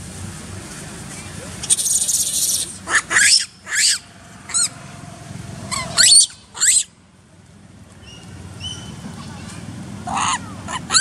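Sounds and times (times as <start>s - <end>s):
monkeys squealing: 1.6s - 4.8s, 5.7s - 6.9s, 10.0s - 11.0s.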